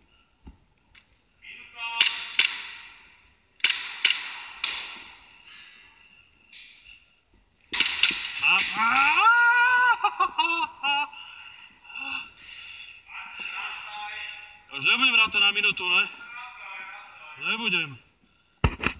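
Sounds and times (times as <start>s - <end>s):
airsoft pistol shots echoing: 2.0s - 5.3s, 7.7s - 9.1s
person shouting: 8.4s - 10.2s.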